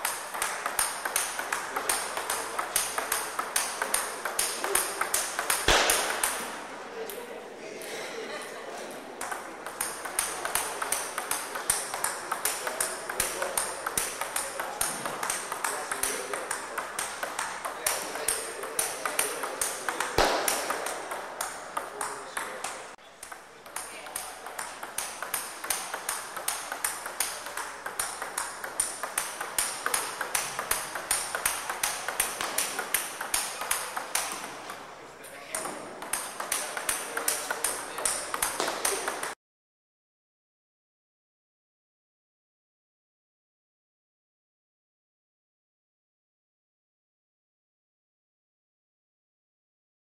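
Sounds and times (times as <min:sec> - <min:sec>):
table tennis ball clicks: 0:00.0 - 0:07.3, 0:09.2 - 0:39.4.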